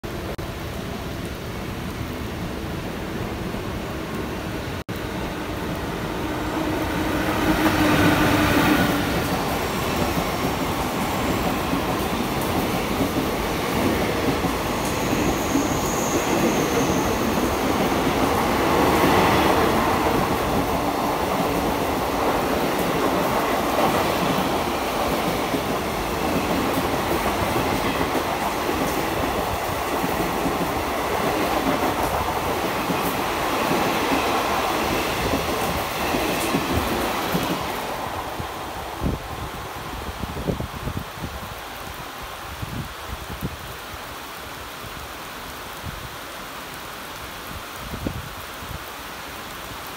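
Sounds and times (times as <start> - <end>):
train running on rails: 0.1 - 44.0
faint high squeal: 14.8 - 17.6.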